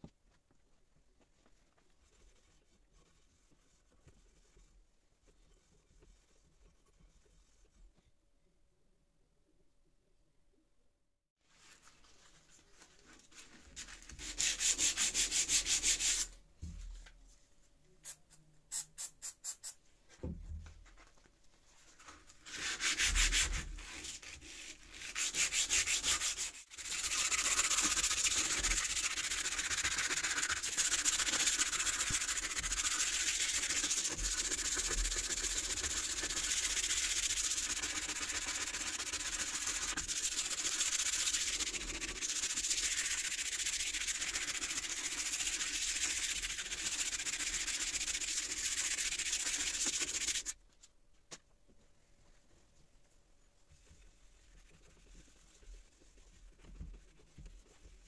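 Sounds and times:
sandpaper scraping metal: 24.9s - 50.5s.

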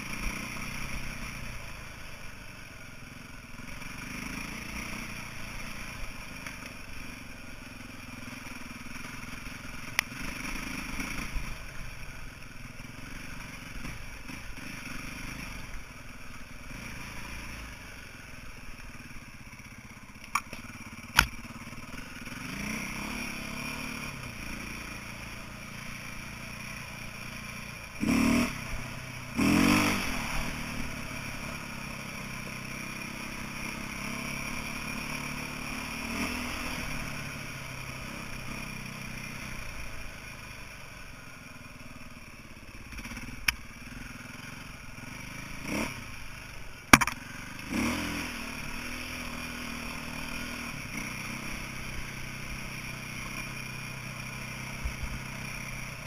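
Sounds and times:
dirt bike engine revving: 3.4s - 12.2s, 13.0s - 41.1s, 41.7s - 56.0s
sharp knocks: 46.9s - 47.2s.

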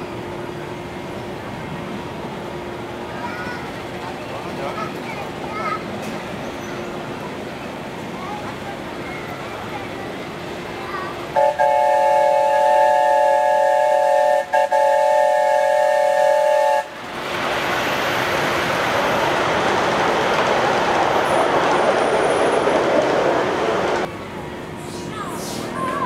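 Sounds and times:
train rushing past: 0.0s - 26.0s
steam locomotive whistle: 11.4s - 16.9s.

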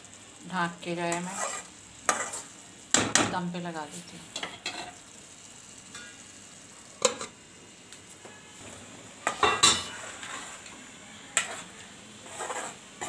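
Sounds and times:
metal spatula clanking on pan: 9.2s - 10.0s.

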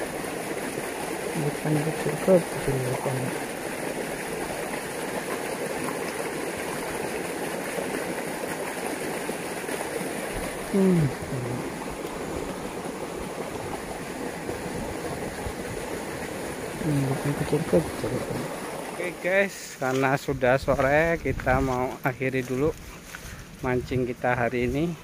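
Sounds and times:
water rushing down a channel: 0.0s - 23.6s
vocal sound falling in pitch: 10.7s - 11.8s.

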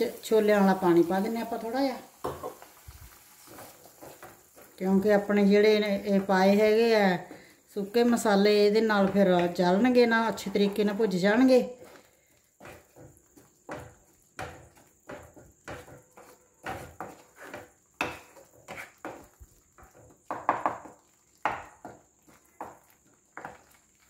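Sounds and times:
spatula scraping paste in pan: 1.0s - 8.2s, 8.8s - 24.0s.

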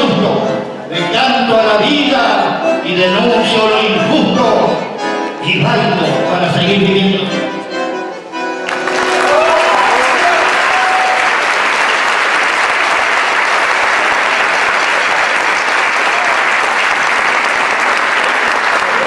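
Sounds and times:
audience applauding: 8.6s - 19.0s
shouts of approval: 9.2s - 11.5s.

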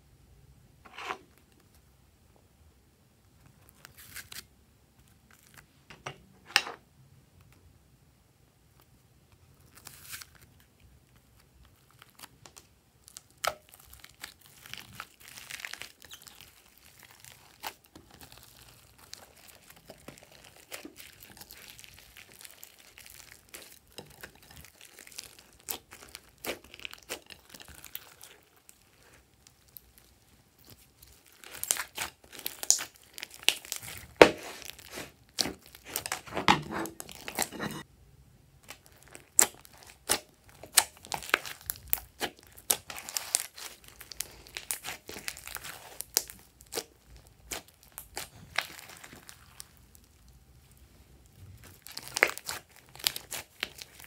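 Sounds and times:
hands squishing slime: 11.9s - 37.8s, 38.6s - 54.0s.

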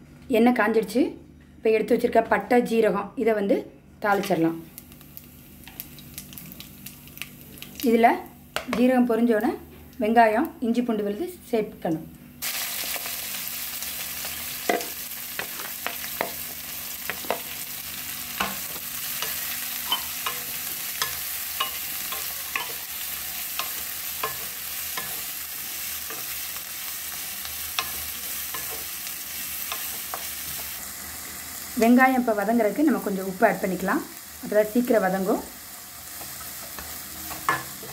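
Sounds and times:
onions sizzling in oil: 12.4s - 37.9s.

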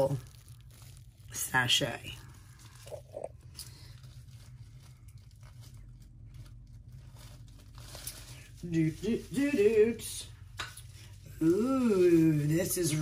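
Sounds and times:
bubble wrap crinkling: 0.0s - 13.0s
person speaking: 8.6s - 10.3s.

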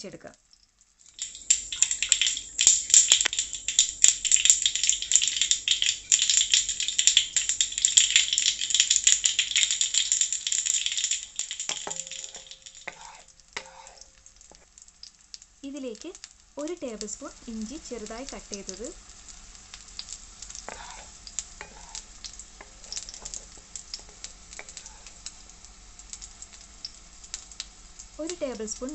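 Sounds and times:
seeds popping in hot oil: 0.0s - 28.9s
spatula scraping a pan: 11.7s - 14.7s, 20.4s - 25.5s.

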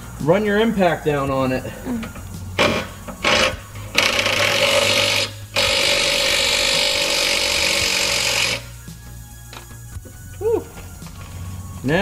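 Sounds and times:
impact wrench hammering: 2.6s - 8.7s.

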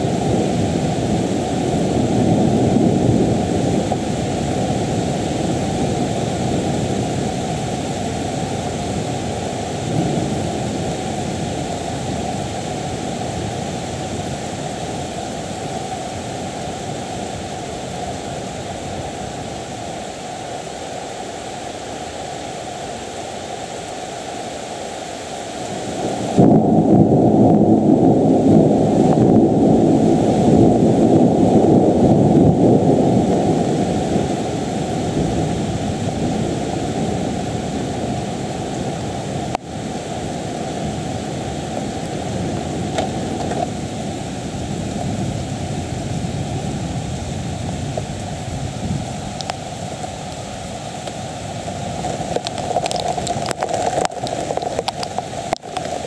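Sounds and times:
thunder rumbling: 0.0s - 17.3s, 25.8s - 39.0s, 39.8s - 56.0s.

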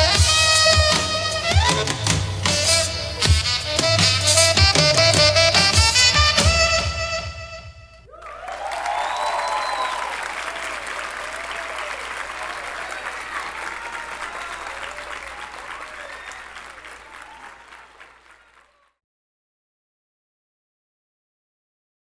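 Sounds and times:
audience cheering and whooping: 8.1s - 18.8s
audience applauding: 8.1s - 19.0s.

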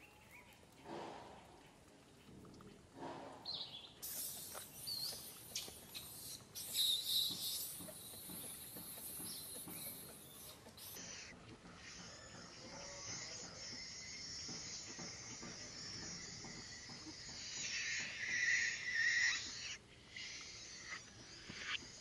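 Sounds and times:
baby monkey squeaky cries: 4.0s - 11.2s.

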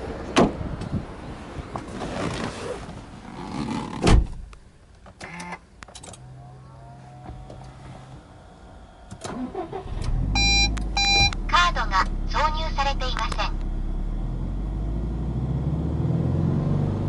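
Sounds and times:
car door thud: 4.0s - 4.5s.

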